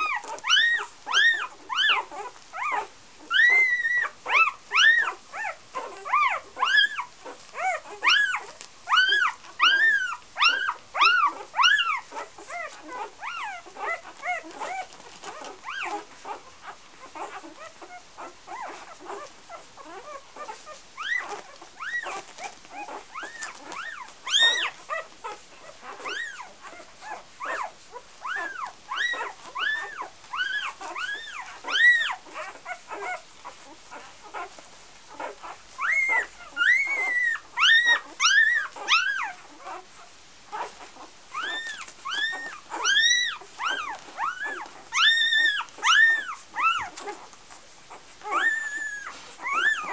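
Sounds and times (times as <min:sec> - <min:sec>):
puppies squealing and whimpering: 0:00.0 - 0:49.9.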